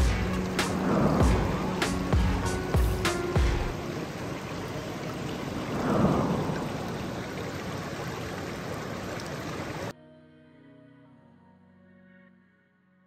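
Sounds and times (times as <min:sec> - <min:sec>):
stream rushing over stones: 0:00.0 - 0:09.9.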